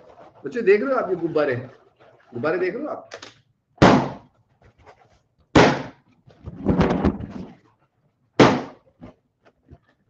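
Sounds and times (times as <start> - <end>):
balloons thumping microphone: 3.8 - 4.3, 5.5 - 7.6, 8.4 - 9.8.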